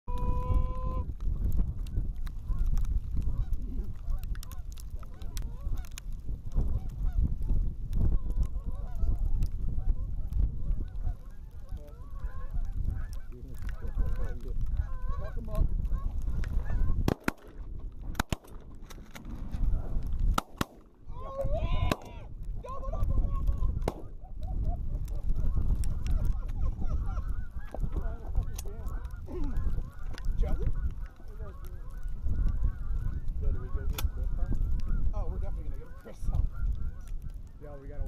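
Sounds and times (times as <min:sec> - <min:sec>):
geese honking: 0:00.1 - 0:01.1, 0:03.3 - 0:05.9, 0:08.2 - 0:17.0, 0:25.1 - 0:37.6
wind rumble on microphone: 0:00.1 - 0:38.0
shotgun shots: 0:17.0 - 0:18.6, 0:20.4 - 0:20.9.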